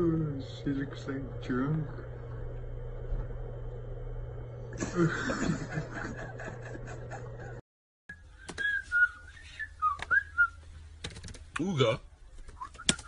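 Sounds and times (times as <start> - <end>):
low hum: 0.0 - 11.0
people snickering and chuckling: 4.8 - 7.6.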